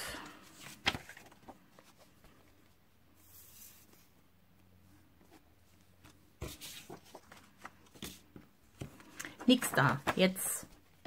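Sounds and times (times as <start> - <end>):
paper rustling: 0.5 - 2.5, 6.0 - 10.5.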